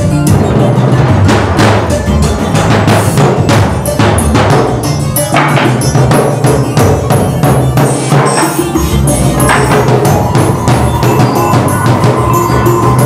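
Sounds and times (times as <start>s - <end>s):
drum kit improvised drumming: 0.0s - 13.0s
steady held tone: 8.2s - 13.0s.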